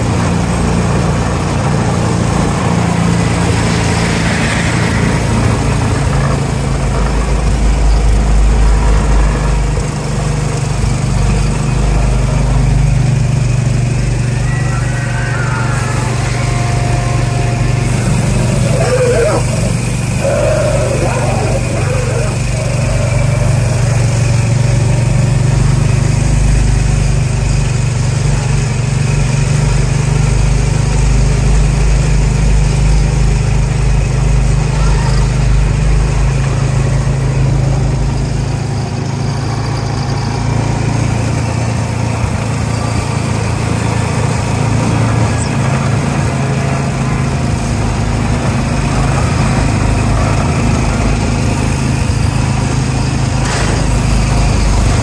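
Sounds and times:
small engine running: 0.0 - 55.0.

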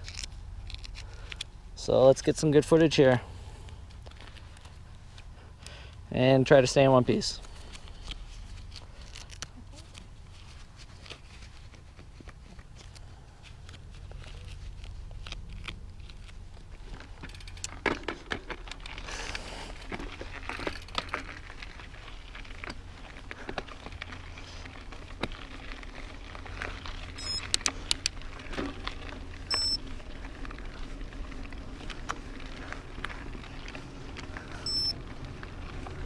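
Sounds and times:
tyres crunching over gravel: 0.0 - 36.0
bike clacking and rattling: 15.1 - 36.0
steady low rumble: 18.5 - 36.0.

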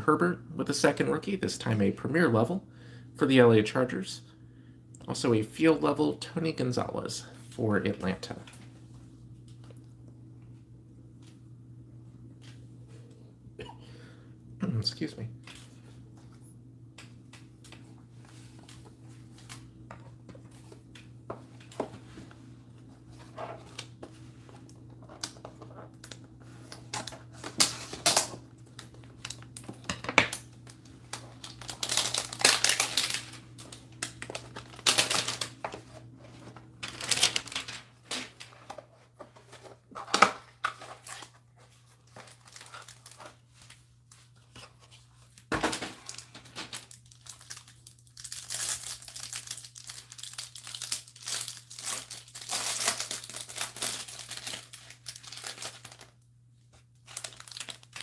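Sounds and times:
low steady hum: 0.0 - 58.0
plastic wrapping crinkling: 25.1 - 38.5, 40.7 - 58.0.

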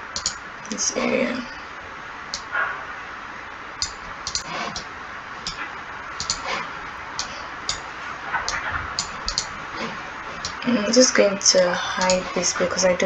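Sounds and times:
steady low hiss: 0.0 - 13.0
computer mouse clicking: 0.1 - 0.4, 3.8 - 5.6, 6.2 - 10.6.

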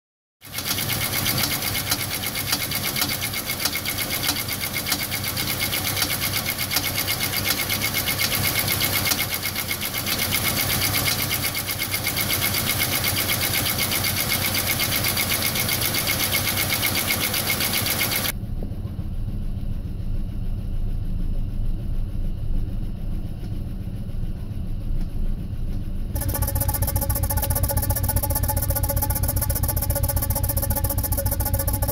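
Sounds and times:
car engine idling roughly: 0.4 - 18.3, 26.2 - 31.9.

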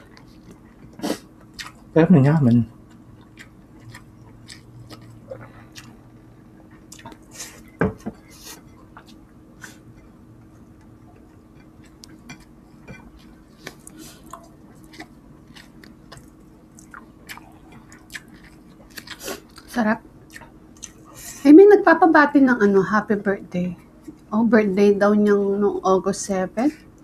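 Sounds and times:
chewing and lip smacks: 0.0 - 1.9, 2.8 - 6.0, 6.7 - 7.8, 13.2 - 21.1.

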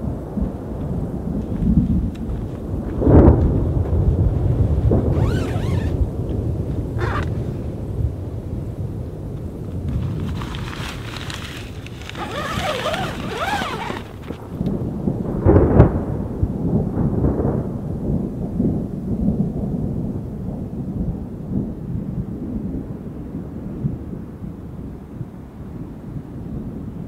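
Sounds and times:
loud thunderclap: 0.0 - 5.2, 14.4 - 24.0
thunder rumbling: 0.0 - 24.4
rain: 0.0 - 27.0.

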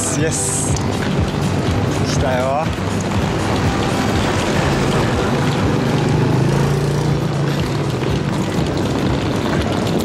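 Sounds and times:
street traffic noise: 0.0 - 10.0
motor scooter passing by: 3.2 - 10.0.

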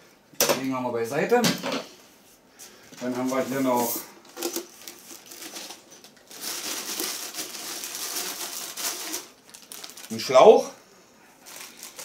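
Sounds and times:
plastic wrapping rustling: 3.0 - 12.0.

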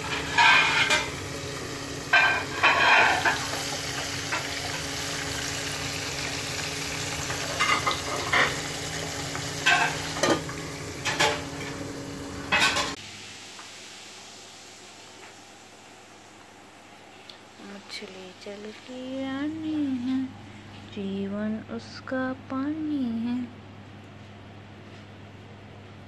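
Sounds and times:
fish sizzling in hot oil: 0.0 - 16.3.

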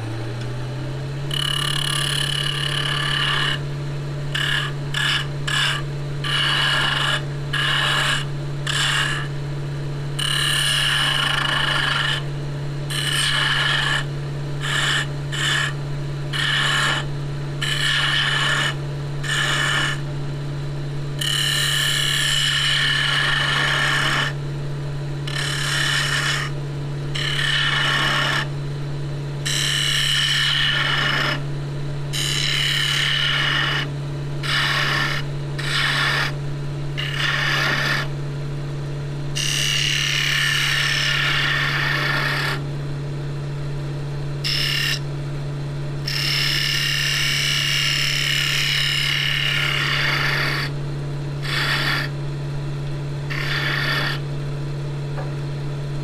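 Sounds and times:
turning tool scraping wood: 1.3 - 3.6, 4.3 - 9.3, 10.2 - 12.3, 12.9 - 20.0, 21.2 - 24.4, 25.3 - 26.6, 27.2 - 28.5, 29.5 - 31.4, 32.2 - 36.4, 37.0 - 38.1, 39.4 - 42.6, 44.4 - 45.0, 46.1 - 50.8, 51.4 - 52.2, 53.3 - 54.2
wood lathe humming: 1.3 - 3.7, 4.3 - 9.3, 10.2 - 12.3, 12.9 - 20.1, 21.2 - 24.4, 25.2 - 28.5, 29.4 - 31.5, 32.1 - 36.4, 37.0 - 38.1, 39.3 - 42.6, 44.4 - 45.0, 46.0 - 50.8, 51.4 - 52.2, 53.3 - 54.3.

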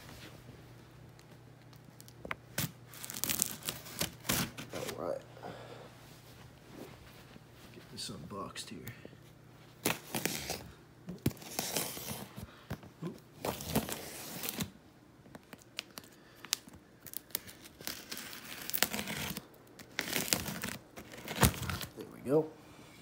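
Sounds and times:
tape and plastic wrap tearing: 1.7 - 5.0, 9.8 - 12.3, 13.0 - 14.8, 15.4 - 22.0.

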